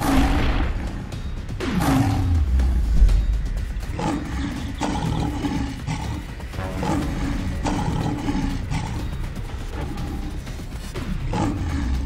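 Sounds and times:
background music: 0.0 - 12.0
cartoon tiger roars and growls: 3.9 - 10.3, 11.0 - 12.0.

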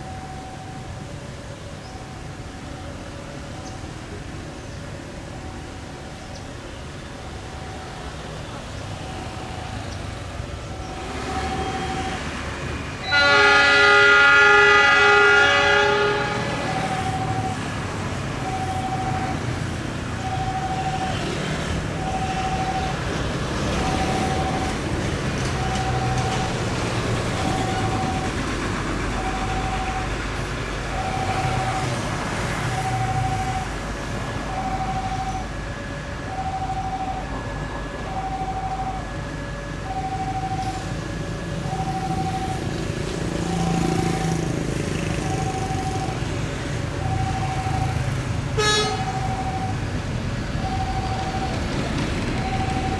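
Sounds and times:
locomotive horn chord: 13.0 - 17.3, 48.5 - 49.3
diesel engine rumbling at idle: 15.8 - 52.9.

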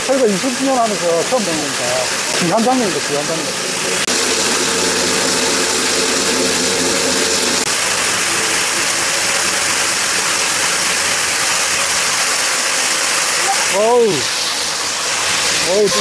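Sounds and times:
core drill motor humming: 0.7 - 11.5.

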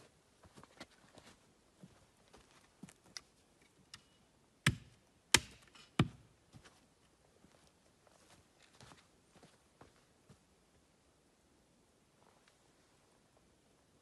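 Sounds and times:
axe chopping wood: 4.7 - 6.3
faint footsteps: 6.5 - 10.5.

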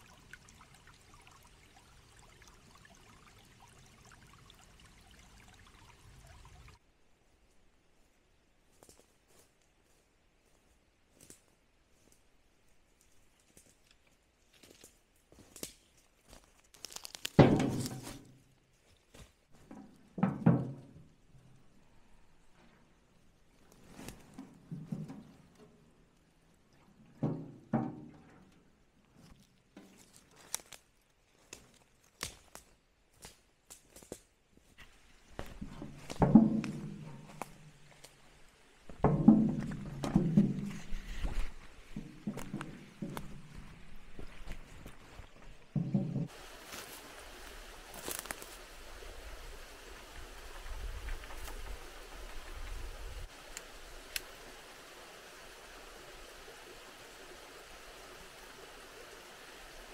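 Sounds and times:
shallow stream rushing: 0.0 - 6.8, 46.3 - 59.9
footsteps on leaf litter: 16.3 - 18.2, 46.4 - 48.6
twigs snapping: 16.5 - 18.1, 30.1 - 34.2
metal tin thuds: 17.4 - 18.2.

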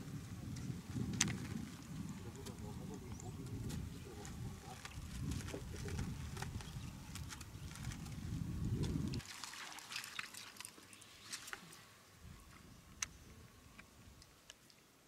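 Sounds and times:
river water splashing: 9.2 - 11.7.

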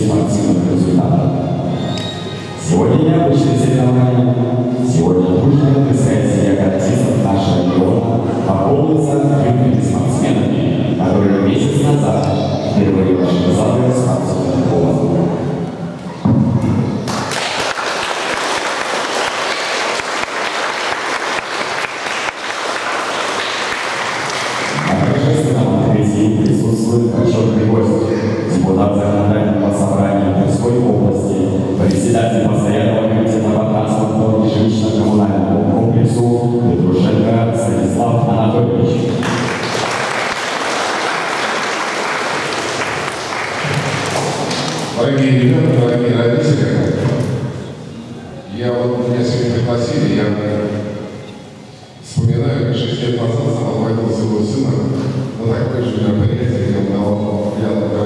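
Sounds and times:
crowd applauding: 17.0 - 25.2, 39.1 - 45.0
person speaking: 24.7 - 39.6.

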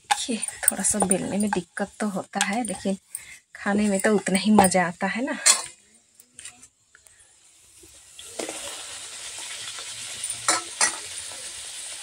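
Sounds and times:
dough sizzling in hot oil: 7.1 - 12.0.

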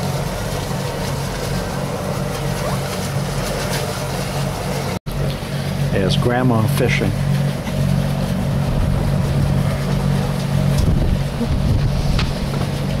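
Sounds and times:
boat motor humming: 0.0 - 13.0.

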